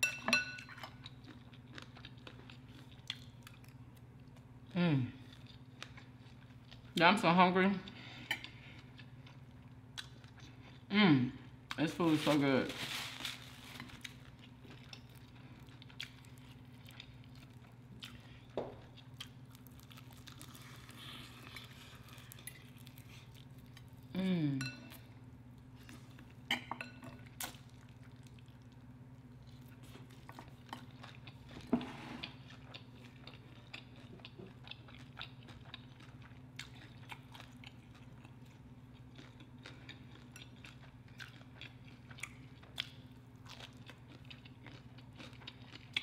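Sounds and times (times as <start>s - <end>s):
crunching fried chicken: 12.0s - 24.0s.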